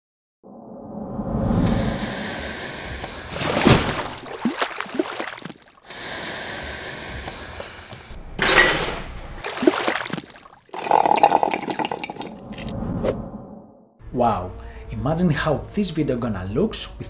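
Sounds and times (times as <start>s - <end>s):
watery rushing: 3.0s - 5.8s, 9.4s - 12.7s.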